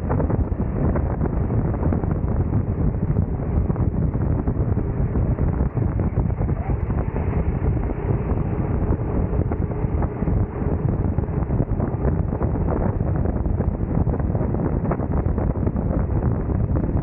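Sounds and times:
wind rumble on microphone: 0:00.0 - 0:17.0
kart engine running: 0:02.9 - 0:14.9.

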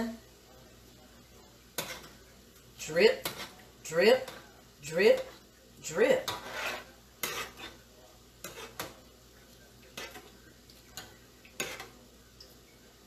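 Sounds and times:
metal spoon scraping a pan: 0:01.7 - 0:09.1, 0:09.8 - 0:12.1.

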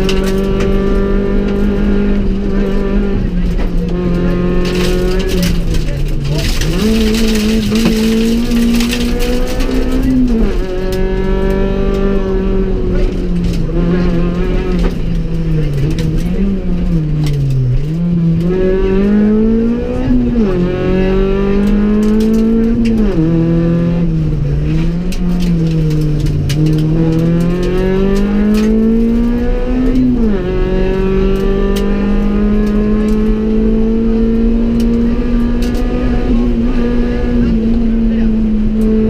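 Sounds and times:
car engine revving: 0:00.0 - 0:39.0
sharp clicks and knocks: 0:03.4 - 0:12.1, 0:20.3 - 0:37.8.

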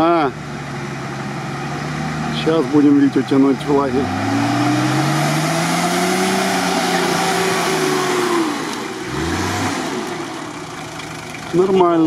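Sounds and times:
engine revving hard: 0:01.7 - 0:10.9.

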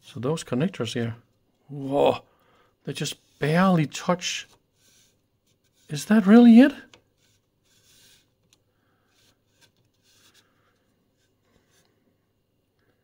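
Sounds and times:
soft rubs and small clicks: 0:06.8 - 0:12.0.

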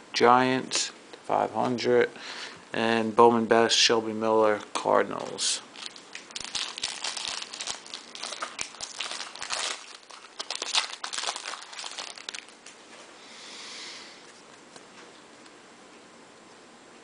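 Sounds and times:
foil wrapper crinkling: 0:05.1 - 0:12.8.

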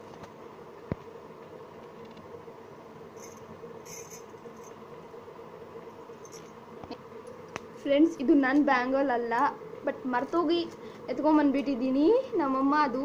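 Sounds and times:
background hiss and hum: 0:00.0 - 0:13.0
bangles chinking: 0:03.2 - 0:04.8.

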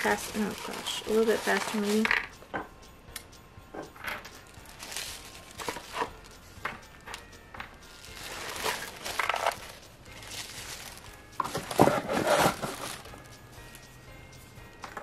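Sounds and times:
packaging rustling and crinkling: 0:00.0 - 0:02.2, 0:04.5 - 0:06.3, 0:07.9 - 0:13.3.

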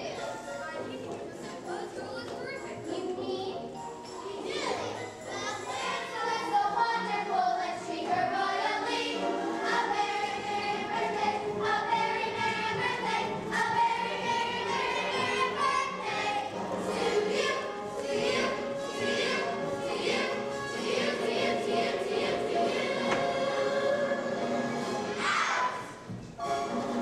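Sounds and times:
children singing in chorus: 0:05.3 - 0:24.6.

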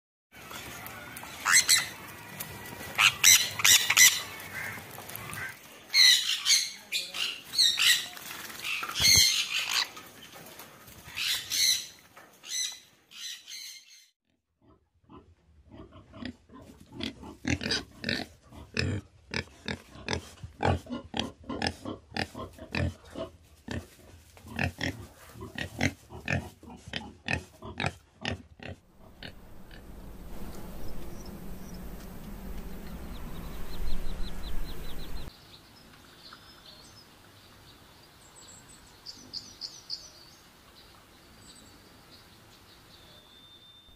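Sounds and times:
parrots squawking shrilly: 0:01.4 - 0:02.0, 0:03.0 - 0:08.1, 0:08.7 - 0:09.9.

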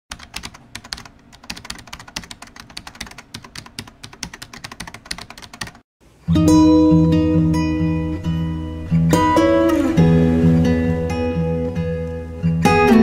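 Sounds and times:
fast typing on keyboard: 0:00.1 - 0:05.8.

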